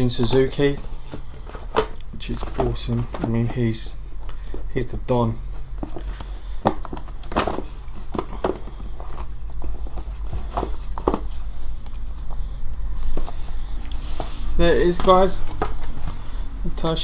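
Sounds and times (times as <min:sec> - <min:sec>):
cardboard rustling and tapping: 0:00.0 - 0:03.7, 0:05.7 - 0:12.4, 0:14.0 - 0:16.2
steady low hum: 0:00.0 - 0:17.0.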